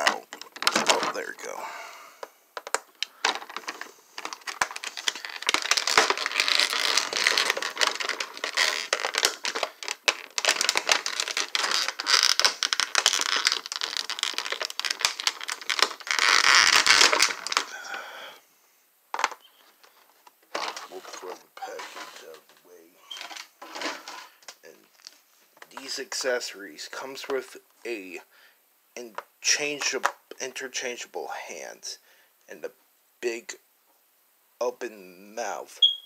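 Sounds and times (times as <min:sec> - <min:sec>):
plastic packaging crinkling: 0:02.6 - 0:18.0, 0:19.2 - 0:26.3.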